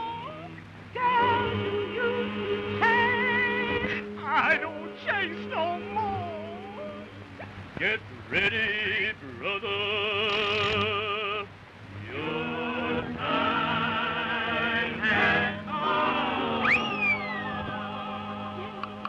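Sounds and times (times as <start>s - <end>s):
chorus of ghostly wailing voices: 12.0s - 19.0s
rising whoop: 16.6s - 17.7s.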